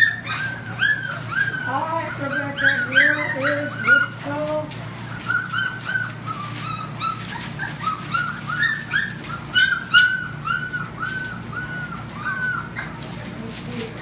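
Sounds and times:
puppies whining: 0.0s - 14.0s.

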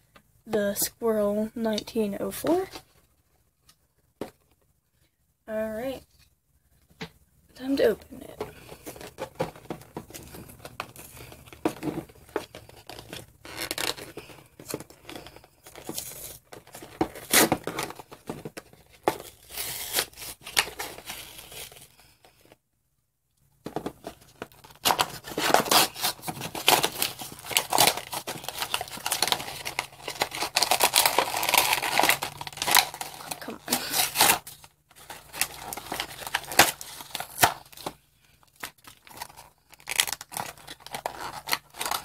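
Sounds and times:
plastic packaging crinkling: 7.8s - 22.4s, 23.8s - 42.0s
cardboard tearing: 8.6s - 21.9s, 24.4s - 38.0s, 38.6s - 42.0s.

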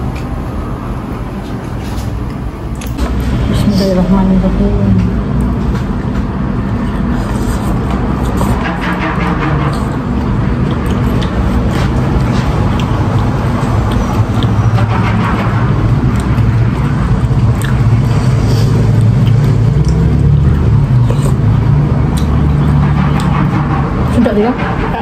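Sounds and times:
loud low rumble: 2.5s - 25.0s
person eating soup: 9.8s - 15.0s, 15.7s - 23.4s.

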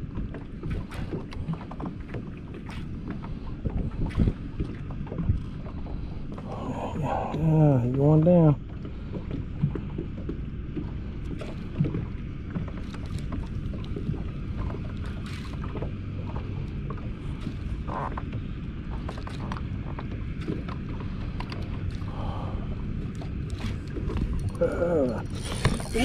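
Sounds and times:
boat engine low rumble: 0.0s - 26.0s.

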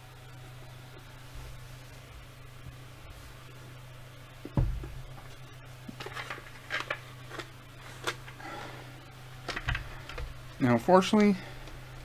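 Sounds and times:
steady low hum: 0.0s - 12.0s
low thump: 4.5s - 5.0s.

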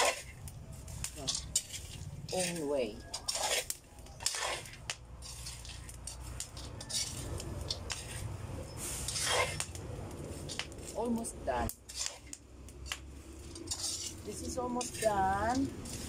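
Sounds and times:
metal spoon scraping frying pan: 0.0s - 16.0s
low rumble: 4.9s - 16.0s.

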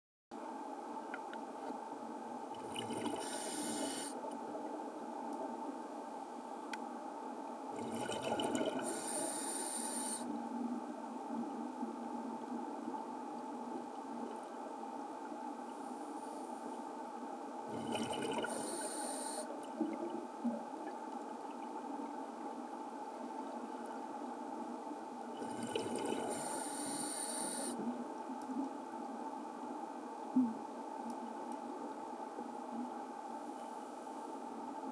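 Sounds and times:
steady underwater hum: 0.3s - 34.9s
exhaled bubbles underwater: 2.6s - 4.1s, 7.8s - 9.1s, 17.7s - 18.9s, 25.4s - 26.8s.

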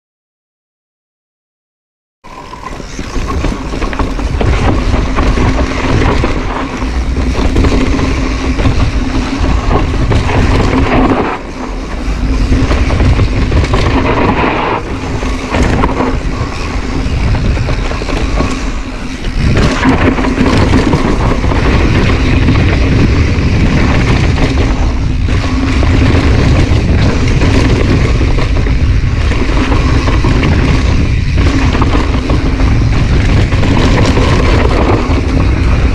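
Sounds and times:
bike tyre and rattle noise: 2.3s - 35.9s
wind buffeting microphone: 2.3s - 35.9s.

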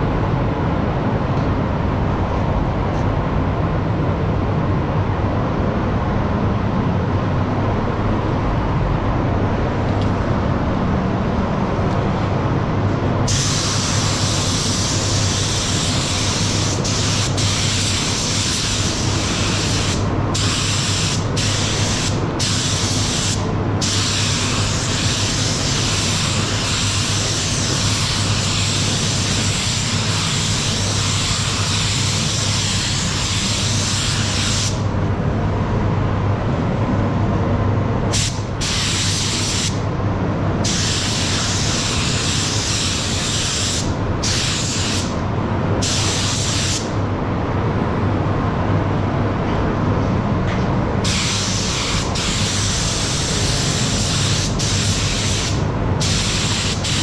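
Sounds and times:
steady low hum: 0.0s - 57.0s
paint spray gun hissing: 13.3s - 34.8s, 51.0s - 57.0s.

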